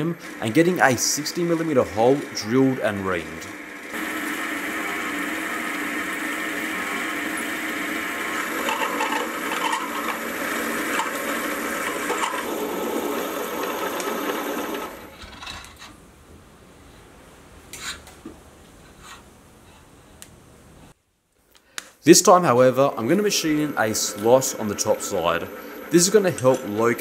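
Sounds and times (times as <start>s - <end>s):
milling machine drilling metal: 0.6s - 15.0s.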